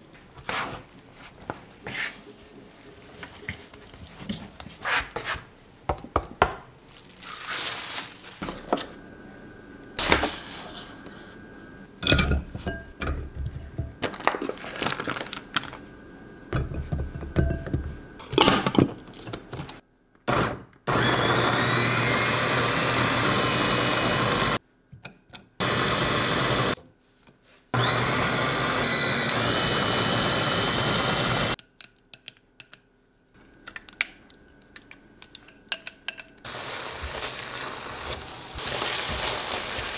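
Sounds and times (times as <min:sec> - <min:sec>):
electric food chopper whirring: 0:20.3 - 0:24.6, 0:25.6 - 0:26.8, 0:27.8 - 0:31.6.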